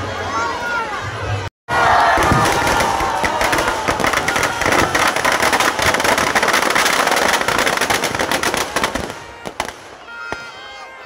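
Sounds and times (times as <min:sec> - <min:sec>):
firecrackers crackling: 0:02.2 - 0:10.6.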